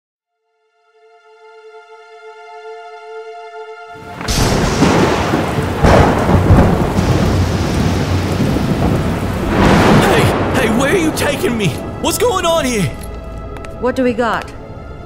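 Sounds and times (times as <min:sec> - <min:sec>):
rumbling thunder: 0:04.0 - 0:12.4
heavy rain: 0:04.0 - 0:13.1.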